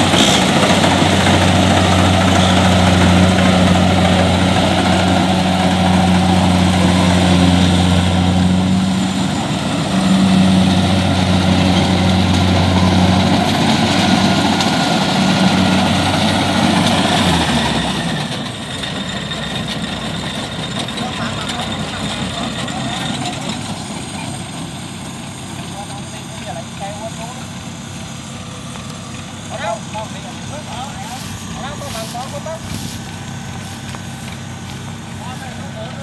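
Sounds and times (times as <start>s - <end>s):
machinery clatter: 0.0s - 27.5s
combine harvester engine drone: 0.0s - 36.0s.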